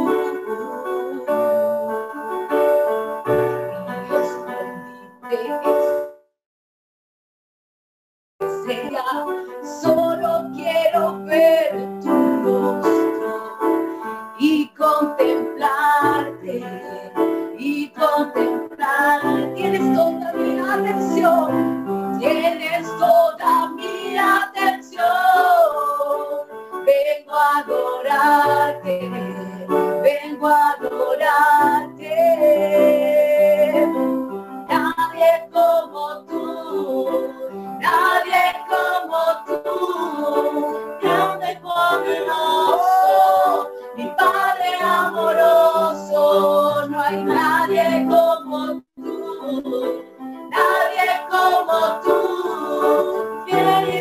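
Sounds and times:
women singing worship song: 0:00.0 - 0:01.8, 0:08.6 - 0:13.8, 0:14.4 - 0:54.0.

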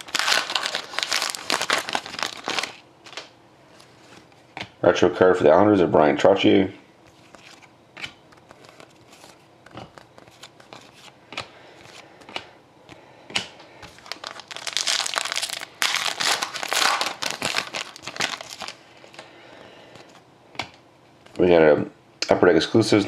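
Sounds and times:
card pack wrapper crinkling: 0:00.0 - 0:03.3, 0:08.3 - 0:11.1, 0:13.9 - 0:19.3
cards being flipped: 0:07.1 - 0:12.4, 0:13.3 - 0:19.2.

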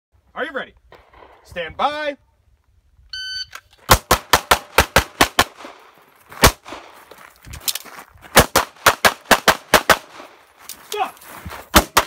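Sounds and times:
pistol shots: 0:03.9 - 0:06.9, 0:08.4 - 0:10.4, 0:11.7 - 0:12.0.

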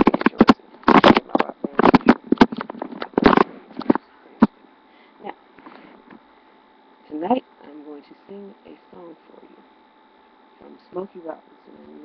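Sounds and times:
webcam handling rustling: 0:00.0 - 0:04.5.

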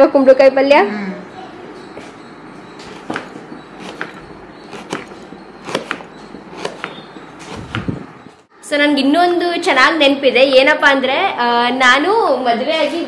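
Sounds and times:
knife cutting on a plate: 0:02.8 - 0:08.0.

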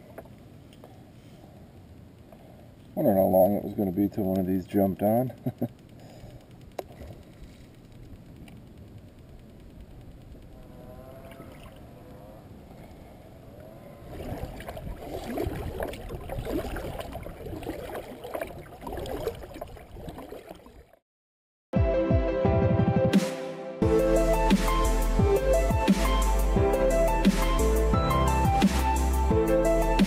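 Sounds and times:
kayak paddle splashing in water: 0:14.0 - 0:21.0
electronic dance music: 0:22.8 - 0:30.0.

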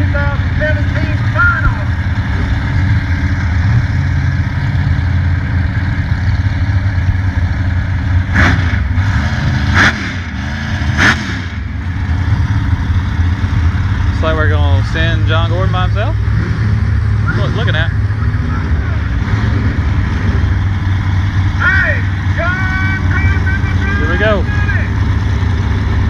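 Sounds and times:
truck engines idling: 0:00.0 - 0:26.0
engine revving bursts: 0:08.2 - 0:26.0.

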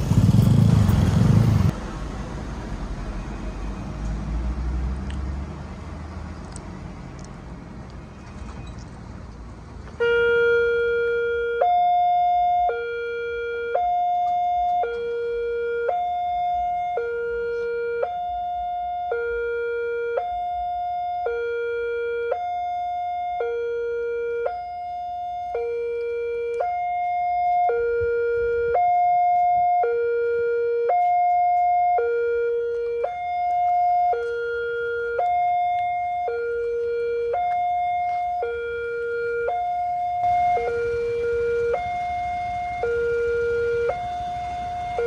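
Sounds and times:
hi-lo crossing warning siren: 0:10.0 - 0:45.0.

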